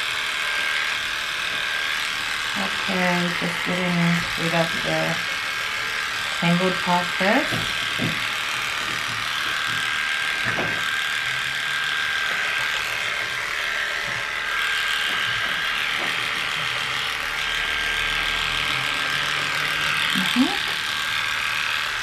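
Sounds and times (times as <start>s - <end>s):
electric clippers buzzing: 0.0s - 22.0s.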